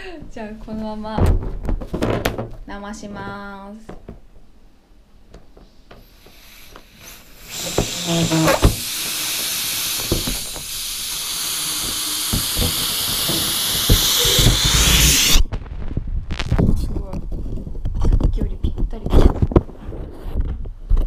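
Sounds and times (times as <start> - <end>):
air hissing from balloon: 5.6 - 15.5
hands knocking on balloon: 7.5 - 15.4.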